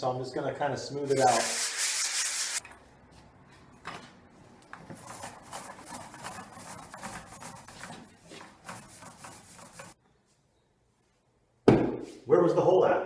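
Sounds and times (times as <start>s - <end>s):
paint roller rubbing on wall: 1.1s - 2.6s, 4.9s - 10.0s.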